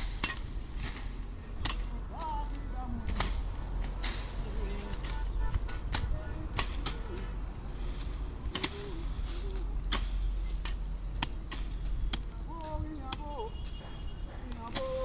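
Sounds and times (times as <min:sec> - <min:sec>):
hand tools chopping: 0:09.8 - 0:15.0.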